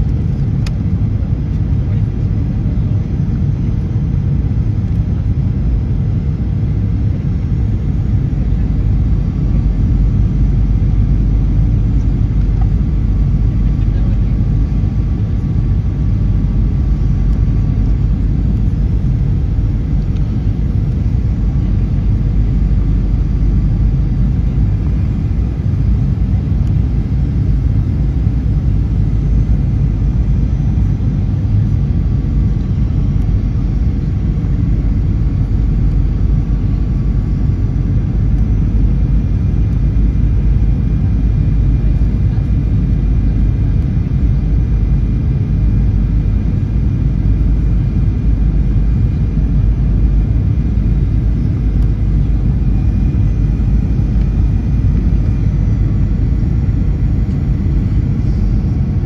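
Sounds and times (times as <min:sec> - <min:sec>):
airplane cabin low rumble: 0:00.0 - 0:59.0.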